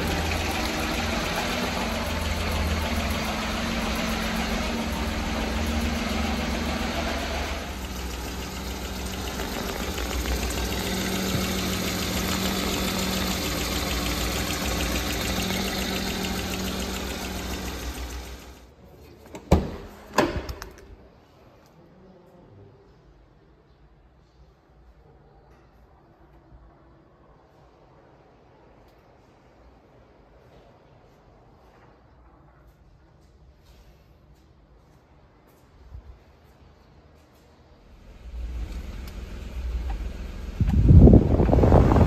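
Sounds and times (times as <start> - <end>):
truck engine idling: 0.0 - 18.6, 37.9 - 42.0.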